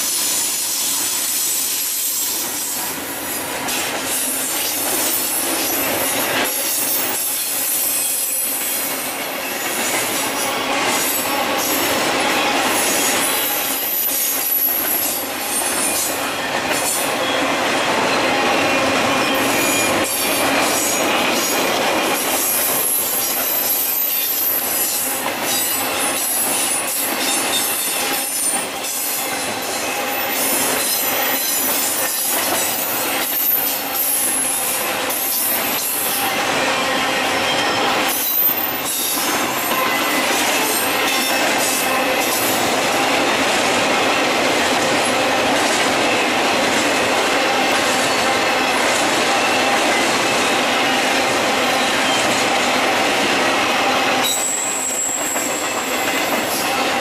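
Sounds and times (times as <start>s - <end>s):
train wheels clattering over rails: 0.0s - 57.0s
high-pitched wheel squeal: 54.2s - 57.0s.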